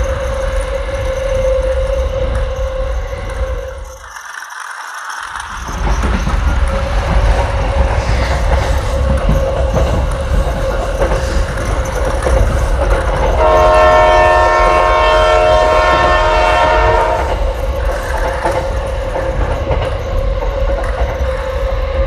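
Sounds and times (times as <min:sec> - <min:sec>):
toy wheels clattering on track: 0:03.3 - 0:13.4, 0:17.2 - 0:20.0
toy train motor whirring: 0:03.7 - 0:07.2.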